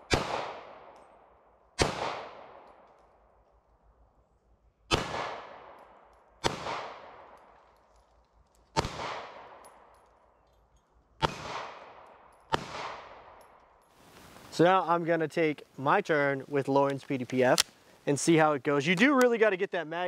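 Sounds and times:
pistol shots echoing: 0:00.0 - 0:01.2, 0:01.8 - 0:02.8, 0:04.9 - 0:07.5, 0:08.7 - 0:10.0, 0:11.2 - 0:13.6.

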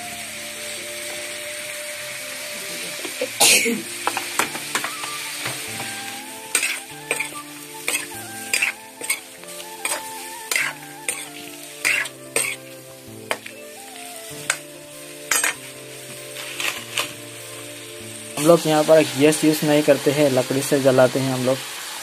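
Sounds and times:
fish frying in hot oil: 0:00.0 - 0:22.0
steel spoon scraping a pan: 0:05.8 - 0:13.5, 0:14.4 - 0:17.2.

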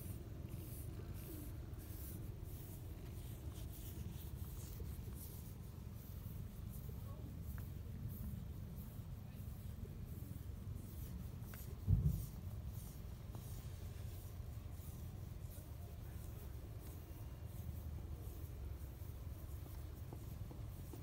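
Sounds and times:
dull thump: 0:11.8 - 0:12.3.

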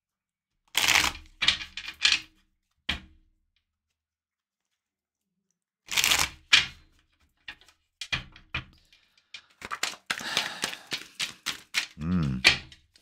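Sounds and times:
card snaps and taps: 0:09.6 - 0:12.0.

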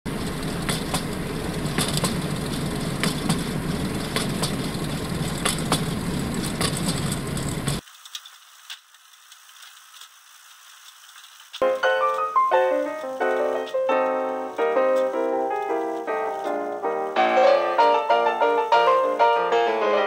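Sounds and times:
rail vehicle rumble: 0:00.1 - 0:07.8, 0:11.7 - 0:19.7
wheels clicking over rail joints: 0:00.1 - 0:19.6
faint hiss: 0:07.8 - 0:20.0.

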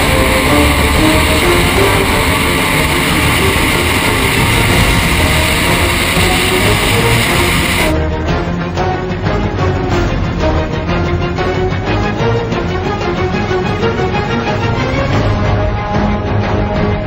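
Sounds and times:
powerboat engine running flat out: 0:00.0 - 0:07.9
faint rock music with guitar: 0:00.0 - 0:17.0.

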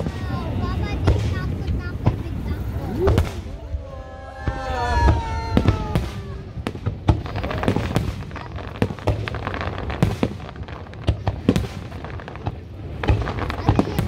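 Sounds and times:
low rumble: 0:01.8 - 0:07.4.

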